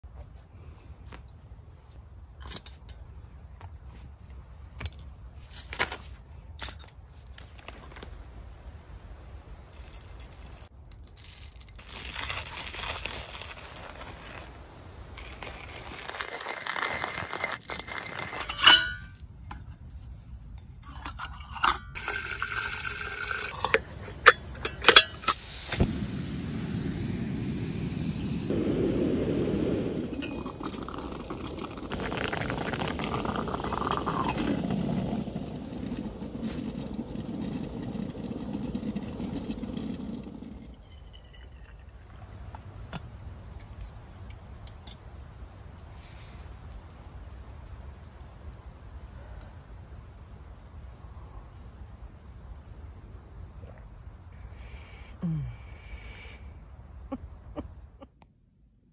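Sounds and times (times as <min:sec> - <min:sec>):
hand coffee grinder grinding: 0:15.2 - 0:18.7, 0:30.1 - 0:40.8
gas burner hissing: 0:22.0 - 0:40.8.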